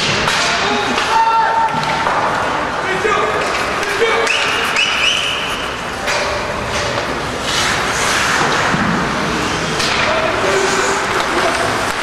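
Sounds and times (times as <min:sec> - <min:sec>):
skates scraping on ice: 0:03.4 - 0:06.0, 0:06.6 - 0:12.0.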